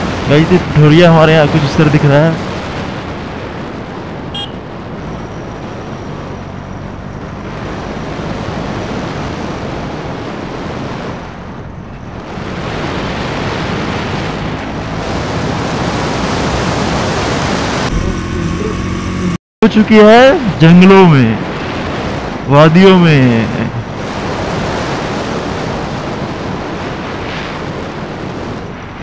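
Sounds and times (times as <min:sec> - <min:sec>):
wind rushing over microphone: 0:00.0 - 0:19.3, 0:21.2 - 0:29.0
motorcycle engine running: 0:17.8 - 0:19.4.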